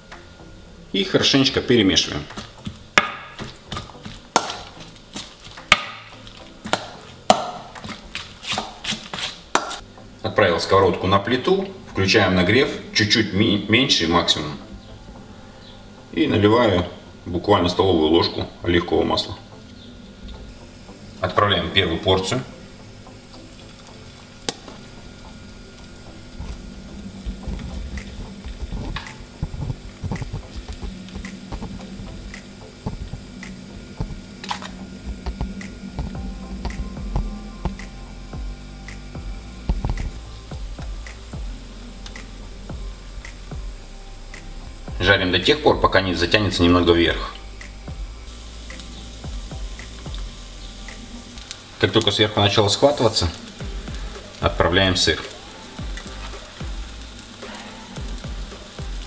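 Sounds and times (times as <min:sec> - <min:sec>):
batter sizzling in oil: 0:00.0 - 0:59.0
utensil stirring wet mixture: 0:01.9 - 0:09.8
spoon tapping pan: 0:02.3 - 0:08.9.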